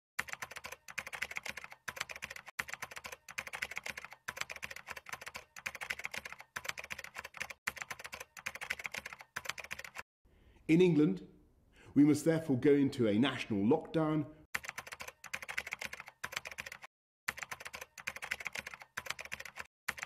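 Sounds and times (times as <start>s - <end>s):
keyboard typing clicks: 0.2s - 10.0s, 14.6s - 20.0s.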